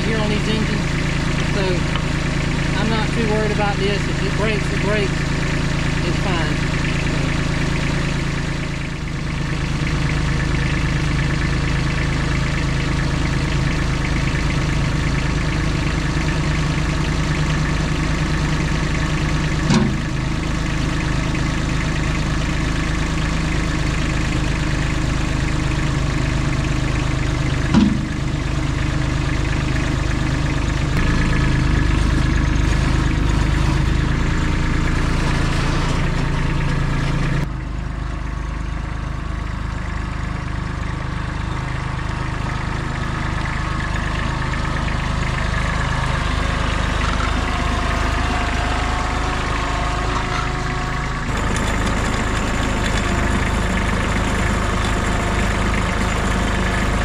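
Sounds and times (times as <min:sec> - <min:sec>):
engine running steadily: 0:00.0 - 0:57.0
sharp knocks: 0:27.7 - 0:28.2.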